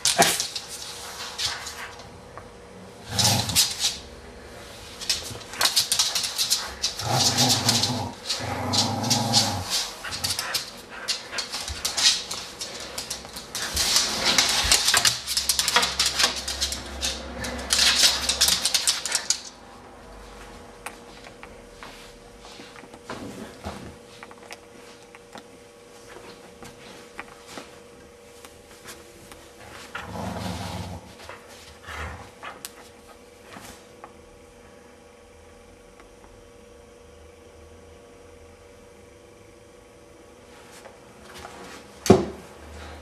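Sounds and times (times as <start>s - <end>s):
dog clattering and scuffling: 5.0s - 19.6s.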